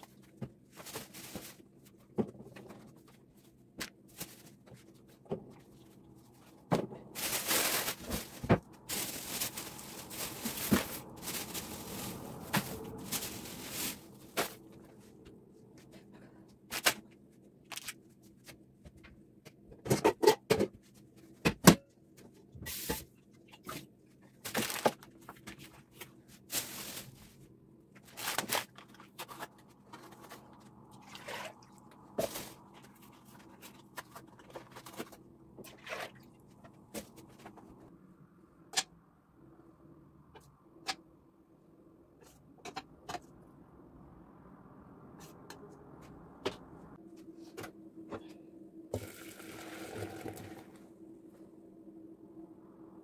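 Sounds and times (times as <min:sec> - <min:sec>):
plastic bags crinkling: 0:07.0 - 0:14.7, 0:24.5 - 0:25.0, 0:28.1 - 0:28.9
faint steady hum: 0:29.9 - 0:53.0.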